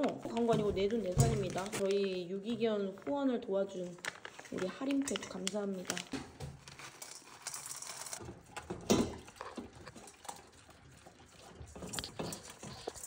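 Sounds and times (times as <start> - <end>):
dog crunching kibble in metal bowl: 4.1 - 13.0.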